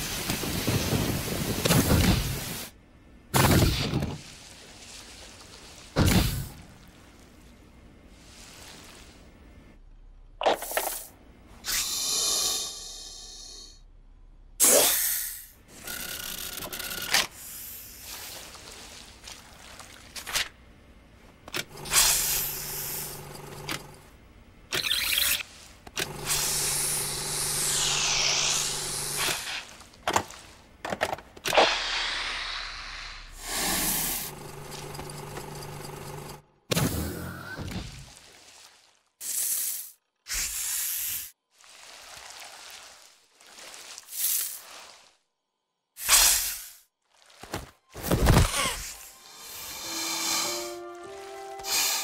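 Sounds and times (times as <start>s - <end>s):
cartoon snakes hissing and rattling: 10.8s - 13.7s, 21.9s - 23.1s, 26.2s - 29.6s, 39.2s - 41.4s, 46.0s - 46.8s, 48.8s - 50.6s
electronic machinery hum: 15.6s - 18.5s, 20.7s - 29.8s, 33.2s - 37.4s.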